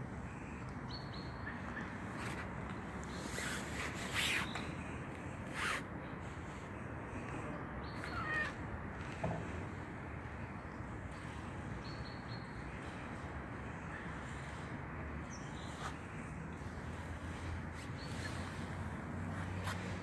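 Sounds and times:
outdoor background noise: 0.0 - 20.0
short bird calls: 7.8 - 8.6.

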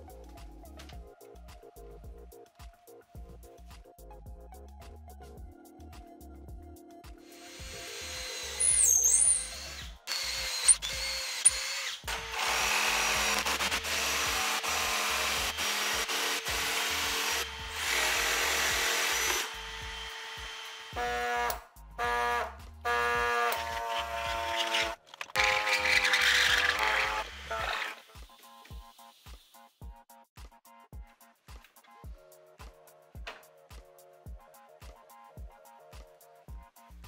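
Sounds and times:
background music: 0.0 - 37.0
power tool running: 7.2 - 21.6, 22.2 - 28.1.

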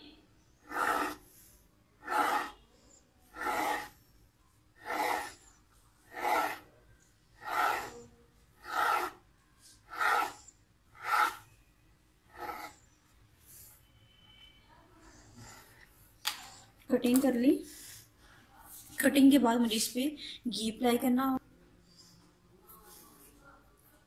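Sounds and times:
knife scraping through dough: 0.6 - 1.4, 2.0 - 2.6, 3.2 - 4.1, 4.8 - 6.7, 7.4 - 9.2, 9.8 - 11.6, 12.3 - 12.9.

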